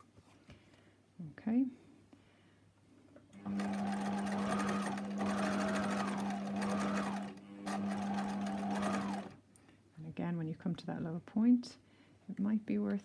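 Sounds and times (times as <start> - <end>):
electric sewing machine running: 3.4 - 9.4.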